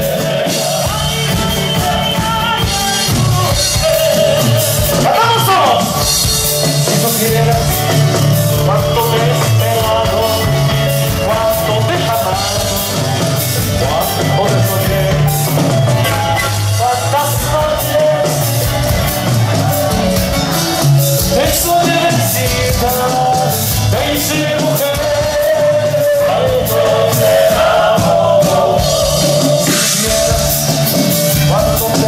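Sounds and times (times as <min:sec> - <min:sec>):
bass line: 0:00.0 - 0:32.0
group singing: 0:00.0 - 0:32.0
percussion: 0:00.0 - 0:32.0
strummed acoustic guitars: 0:00.0 - 0:32.0.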